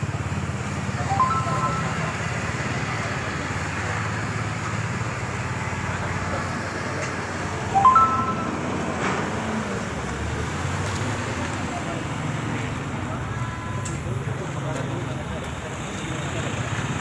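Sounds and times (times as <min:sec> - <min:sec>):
traffic engine hum: 0:00.0 - 0:17.0
short high chirps: 0:01.0 - 0:02.6, 0:07.7 - 0:08.9.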